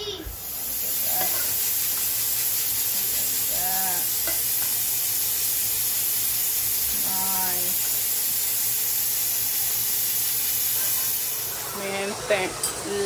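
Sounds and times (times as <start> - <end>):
food sizzling in a metal pan: 0.0 - 13.0
spoon stirring in pan: 0.8 - 4.9.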